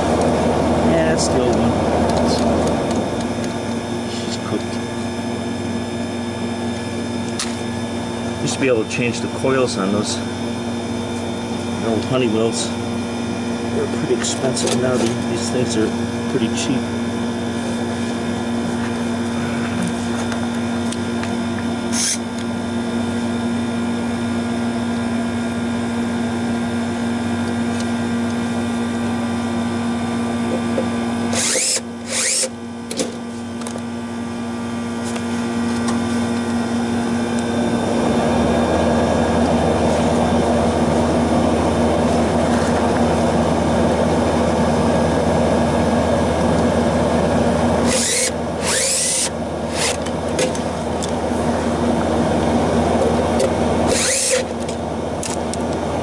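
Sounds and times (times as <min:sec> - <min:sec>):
steady hum: 0:00.0 - 0:56.0
cordless drill driving screws: 0:21.9 - 0:22.3, 0:31.3 - 0:32.5, 0:47.8 - 0:50.0, 0:53.9 - 0:54.5.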